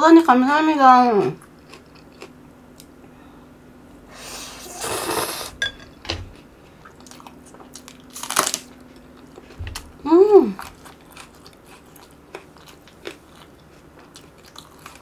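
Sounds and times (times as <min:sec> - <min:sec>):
slurping noodles: 0:04.4 - 0:05.5.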